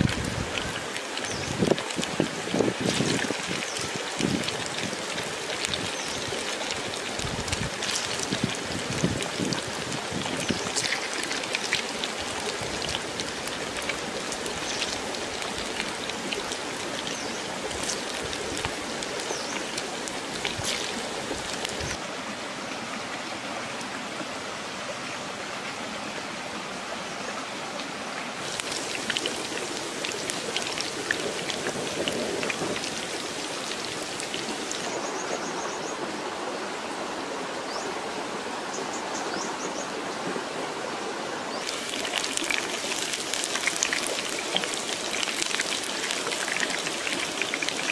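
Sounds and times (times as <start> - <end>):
deep-frying sizzle in oil: 0.0 - 22.0, 28.4 - 35.0, 41.6 - 47.9.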